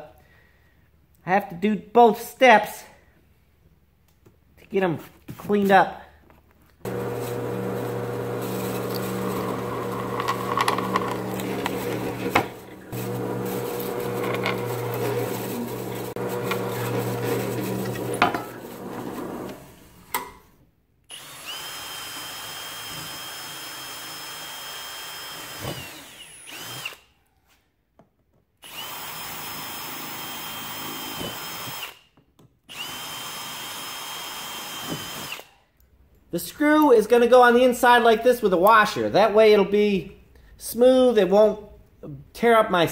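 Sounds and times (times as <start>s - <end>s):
drill press drilling metal: 6.9s - 19.8s
cordless drill whining: 6.9s - 19.9s, 21.1s - 27.2s, 28.6s - 32.1s, 32.7s - 35.6s.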